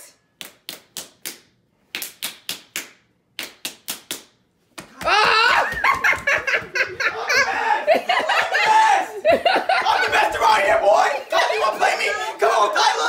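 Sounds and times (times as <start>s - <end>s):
hand claps and slaps: 0.4s - 6.8s
excited voices: 5.0s - 13.0s
laughter: 5.2s - 10.2s.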